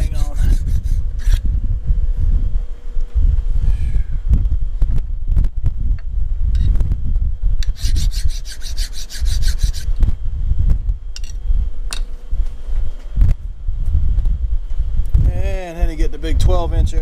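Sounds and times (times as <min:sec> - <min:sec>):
file scraping steel: 0:00.0 - 0:01.4, 0:07.6 - 0:09.9.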